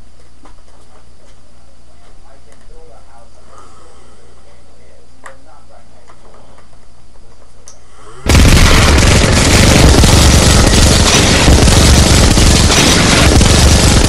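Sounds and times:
machine-gun fire: 0:08.3 - 0:14.0.

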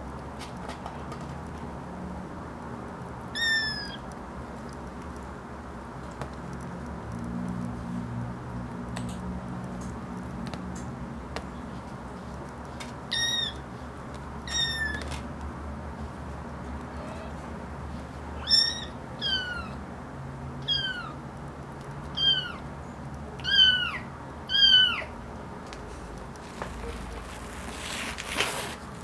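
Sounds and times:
kittens mewing: 0:16.9 - 0:17.5, 0:18.4 - 0:19.8, 0:20.6 - 0:21.2, 0:22.1 - 0:22.6, 0:23.4 - 0:25.1.

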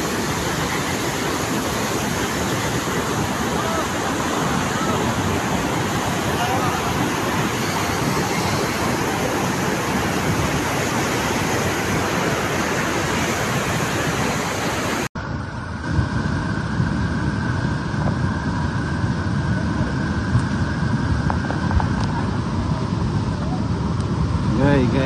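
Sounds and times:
flood water rushing: 0:00.0 - 0:15.1.

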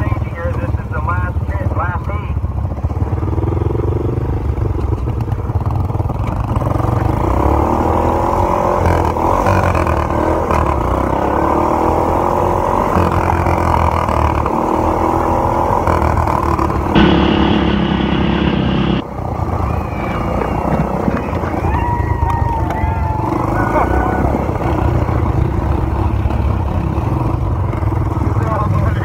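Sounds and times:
lawn mower engine revving: 0:06.2 - 0:19.0
rough ride rumble: 0:12.8 - 0:29.0.

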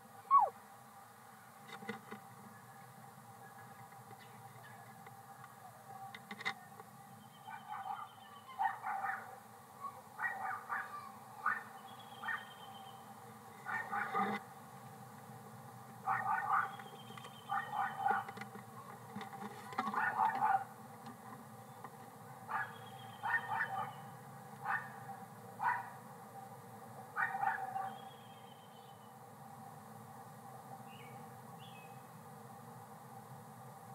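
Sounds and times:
short rough bird calls: 0:00.3 - 0:00.5
dog barking: 0:07.5 - 0:09.3, 0:10.2 - 0:12.5, 0:13.6 - 0:14.2, 0:16.0 - 0:16.8, 0:17.5 - 0:18.3, 0:19.9 - 0:20.7, 0:22.5 - 0:24.0, 0:24.6 - 0:25.0, 0:25.6 - 0:26.0, 0:27.2 - 0:28.0.

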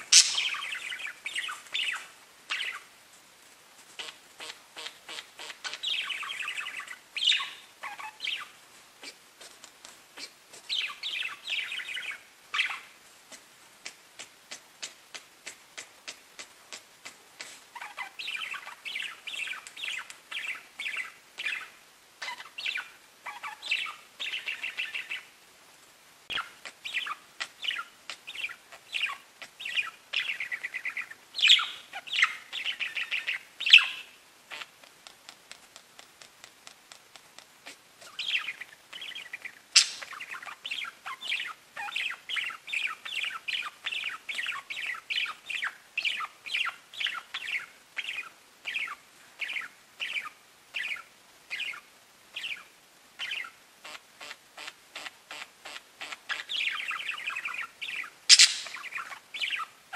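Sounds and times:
budgerigars chattering: 0:00.0 - 0:02.9, 0:04.0 - 0:09.2, 0:17.4 - 0:25.3, 0:26.3 - 0:34.7, 0:37.6 - 0:51.8, 0:52.4 - 0:59.7
sharp click: 0:58.3 - 0:58.8.

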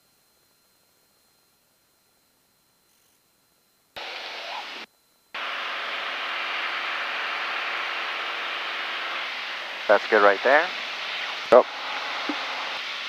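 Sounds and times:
aircraft engine drone: 0:04.0 - 0:13.0
airflow hiss: 0:04.0 - 0:13.0.

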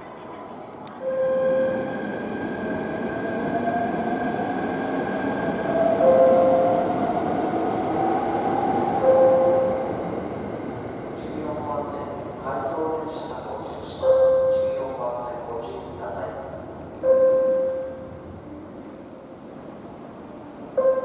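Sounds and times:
train running with rising whine: 0:00.5 - 0:12.6
short steady tone: 0:01.0 - 0:01.8, 0:17.0 - 0:18.1, 0:20.8 - 0:21.0.

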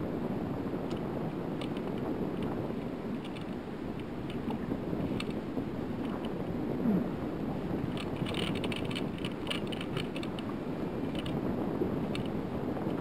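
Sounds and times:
water slapping against boat: 0:00.0 - 0:13.0
wind buffeting microphone: 0:00.0 - 0:13.0
light clicks: 0:12.1 - 0:12.3.

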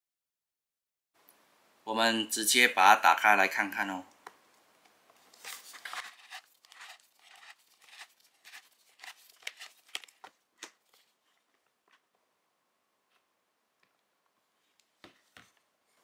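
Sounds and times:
knife scraping plastic bottle: 0:05.3 - 0:11.2.

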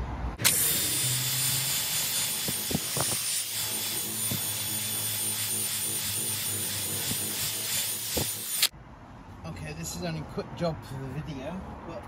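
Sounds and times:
drill motor whine: 0:00.4 - 0:08.7
polishing pad rubbing paint: 0:00.7 - 0:08.7.

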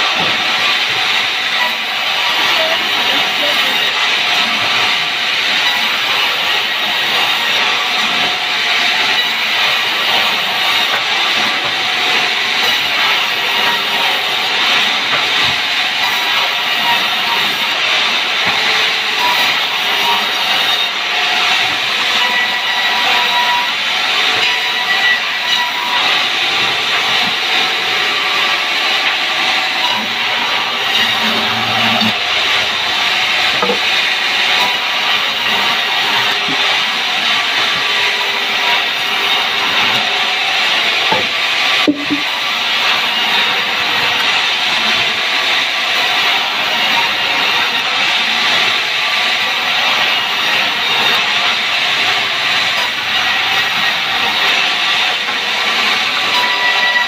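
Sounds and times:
band saw hissing: 0:08.8 - 0:37.6.

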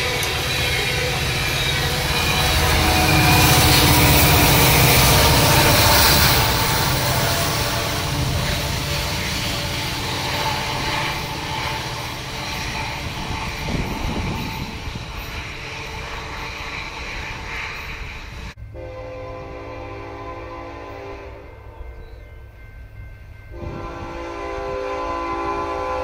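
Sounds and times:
horn-like tones: 0:00.0 - 0:14.4, 0:18.7 - 0:22.0, 0:23.6 - 0:26.0
distant multi-tone train horn: 0:00.0 - 0:16.2, 0:18.6 - 0:22.6, 0:23.2 - 0:26.0
freight train rumbling past: 0:00.0 - 0:26.0.

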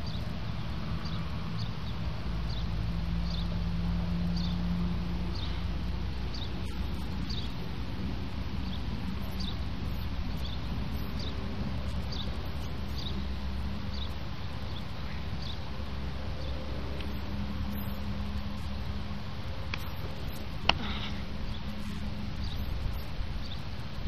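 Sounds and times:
faint high chirps: 0:17.0 - 0:18.7.

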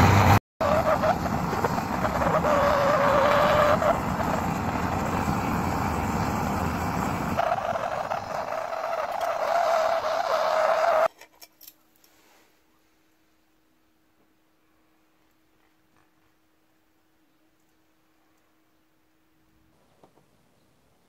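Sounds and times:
cutting torch hissing: 0:00.0 - 0:11.1.

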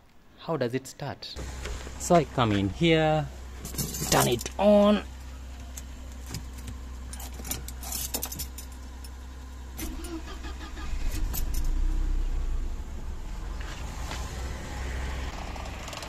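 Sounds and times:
car engine idling: 0:01.4 - 0:16.0
car engine cranking and starting: 0:03.4 - 0:16.0
keys jingling: 0:03.6 - 0:04.6, 0:05.8 - 0:09.2.

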